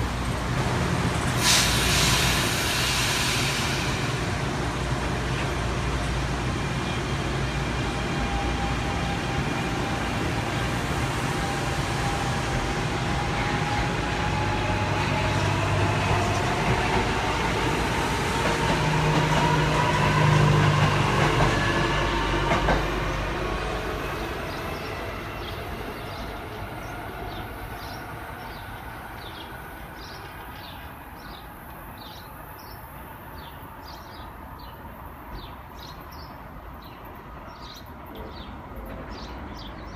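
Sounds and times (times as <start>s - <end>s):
train running gear rumble: 0.0s - 28.5s
birds chirping: 22.7s - 39.9s.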